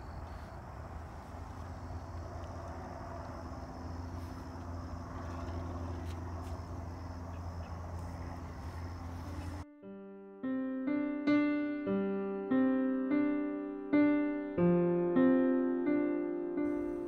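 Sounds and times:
faint hum: 0.0 - 9.6
low outdoor rumble: 0.0 - 9.6.

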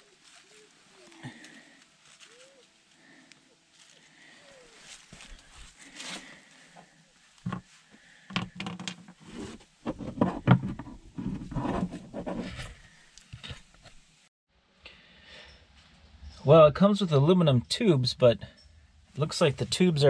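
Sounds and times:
footsteps on dry leaves: 0.0 - 6.7
plastic panel knocking and scraping: 7.4 - 7.6, 8.3 - 12.6.

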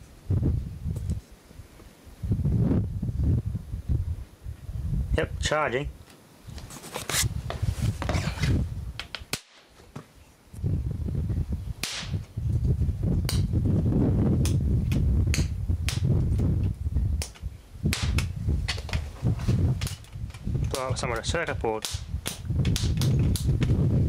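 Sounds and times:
sharp cracks and snaps: 9.0 - 9.8, 11.8 - 12.4, 13.2 - 13.6, 14.4 - 19.1, 19.8 - 23.8.

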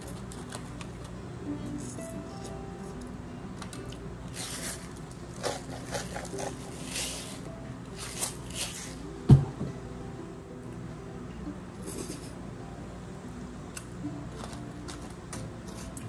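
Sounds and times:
seasoning shaker hissing: 4.3 - 9.1
shaker knocking on table: 9.3 - 9.7.

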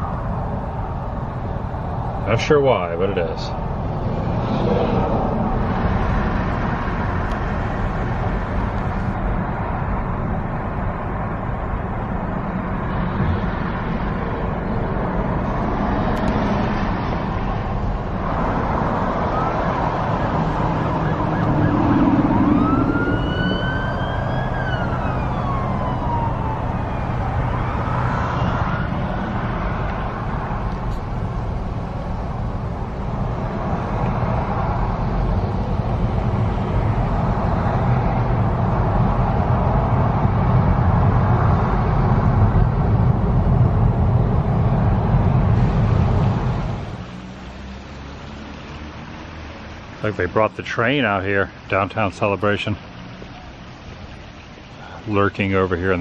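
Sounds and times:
car road and engine noise: 0.0 - 56.0
siren wailing: 19.0 - 29.6.

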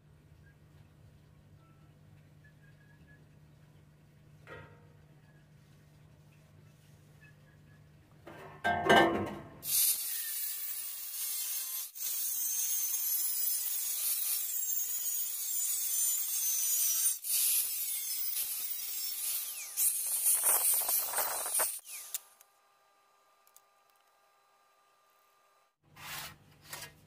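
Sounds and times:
angle grinder cutting sheet metal: 9.6 - 22.4.

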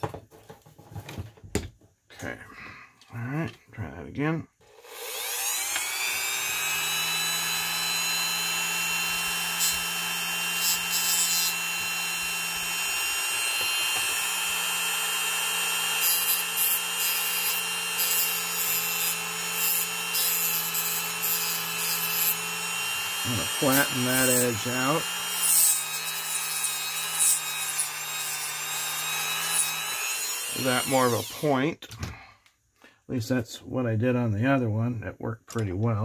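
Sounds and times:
rotary tool grinding plastic: 4.6 - 31.5
rotary tool whining: 4.6 - 31.5.

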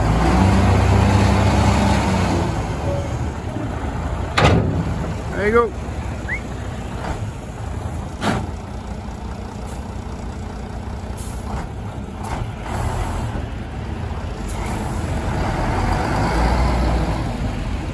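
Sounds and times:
truck diesel engine running: 0.0 - 17.9.

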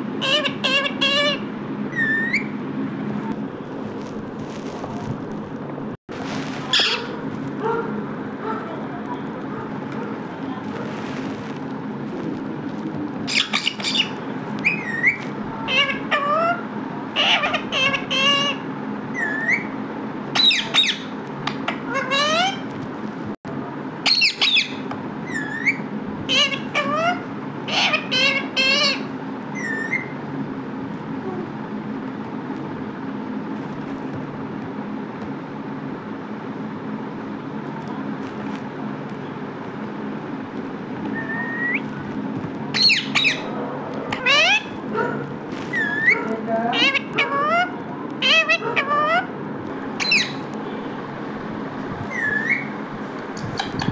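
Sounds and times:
steady low hum: 0.0 - 53.9
parakeet squeaky calls: 0.2 - 2.6, 6.7 - 7.2, 13.3 - 19.7, 20.4 - 22.7, 24.0 - 30.2, 41.1 - 41.9, 42.7 - 43.5, 44.1 - 44.8, 45.6 - 49.3, 50.0 - 50.5, 52.0 - 52.8, 53.4 - 53.9.

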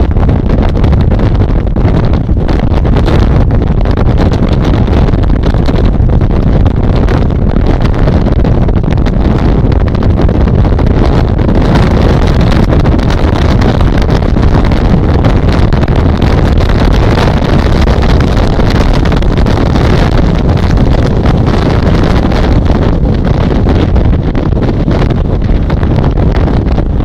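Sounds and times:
water rushing along hull: 0.0 - 27.0
wind buffeting microphone: 0.0 - 27.0.

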